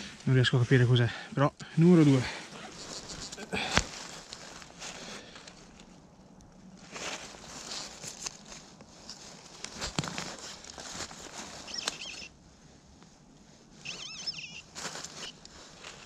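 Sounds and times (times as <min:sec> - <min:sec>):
dry leaves rustling: 0:01.8 - 0:05.8, 0:06.7 - 0:12.3, 0:13.8 - 0:16.0
metal detector warbling tones: 0:11.7 - 0:12.3, 0:13.9 - 0:14.6.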